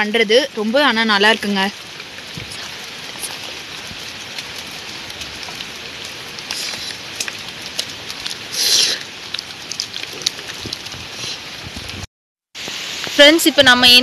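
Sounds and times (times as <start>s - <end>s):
steady rain falling: 0.0s - 14.0s
rustling noise: 2.1s - 13.2s.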